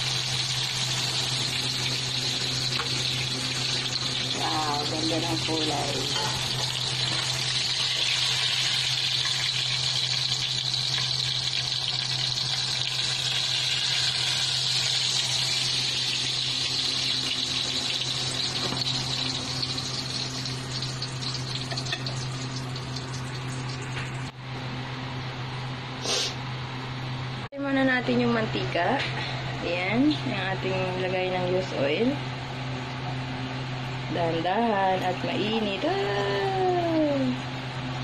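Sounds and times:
oil sizzling in a wok: 0.0s - 24.3s
low steady hum: 0.0s - 25.9s, 26.6s - 38.0s.

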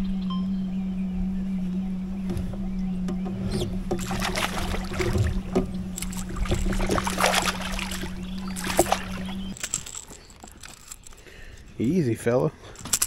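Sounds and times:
electric outboard motor humming: 0.0s - 11.2s
water splashing: 3.8s - 11.0s.

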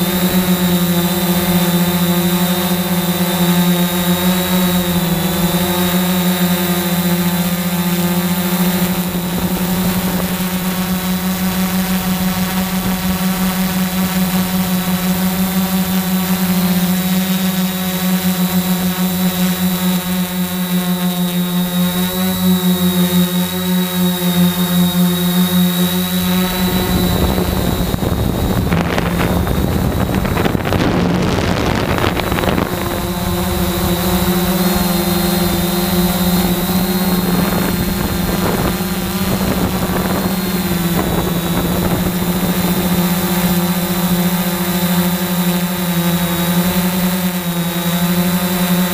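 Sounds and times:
drone propellers whining: 0.0s - 48.9s
rush of noise: 26.0s - 43.3s.

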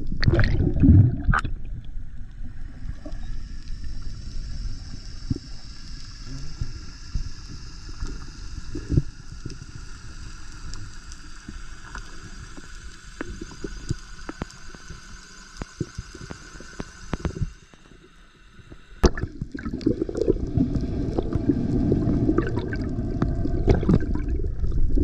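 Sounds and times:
underwater water wash: 0.0s - 25.0s.

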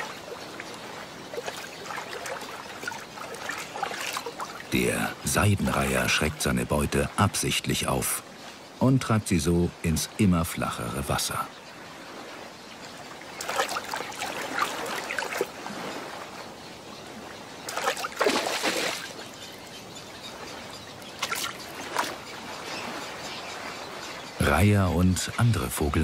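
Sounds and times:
shallow water splashing: 0.0s - 7.5s, 11.9s - 16.5s, 17.1s - 19.6s, 20.2s - 24.6s.

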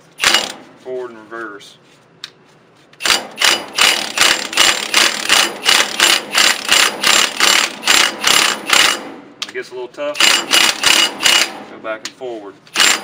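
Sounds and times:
impact driver rattling: 0.2s - 0.7s, 3.0s - 9.2s, 10.2s - 11.8s, 12.7s - 13.0s.

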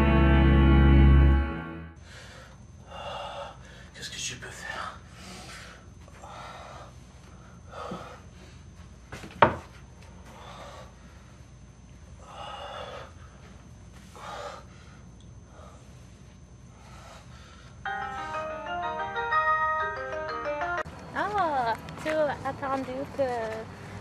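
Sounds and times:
man breathing hard: 2.0s - 4.0s, 4.6s - 8.7s, 10.2s - 18.6s.

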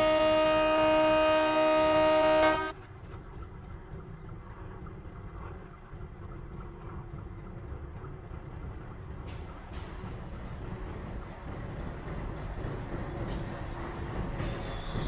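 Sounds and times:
train horn chord: 0.0s - 2.8s.

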